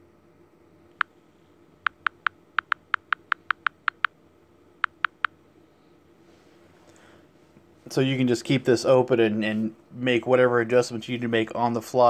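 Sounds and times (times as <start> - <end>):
smartphone touch feedback ticks: 1.9 - 4.1, 4.8 - 5.3.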